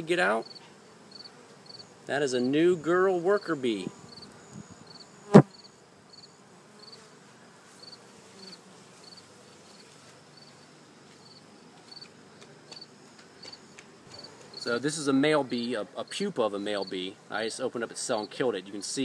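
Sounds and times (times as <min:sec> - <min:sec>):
faint hum of honeybees: 0:00.0 - 0:19.0
cricket chirping: 0:00.4 - 0:01.9, 0:04.0 - 0:07.0, 0:07.8 - 0:12.1.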